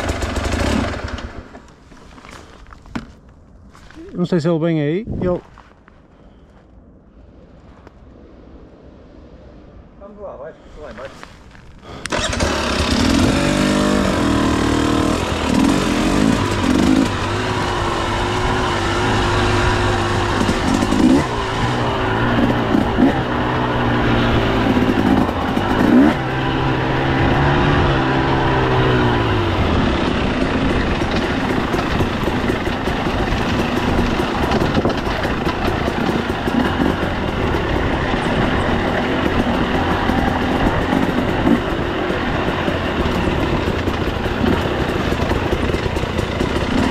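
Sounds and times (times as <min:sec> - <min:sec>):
dirt bike engine revving: 0:00.0 - 0:01.4, 0:12.0 - 0:46.9.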